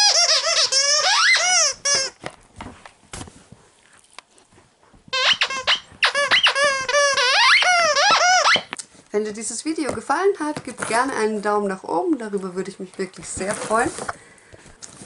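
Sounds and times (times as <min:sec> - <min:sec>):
dog toy squeaking: 0:00.0 - 0:02.2, 0:05.1 - 0:08.8
soft rustling: 0:12.3 - 0:15.0.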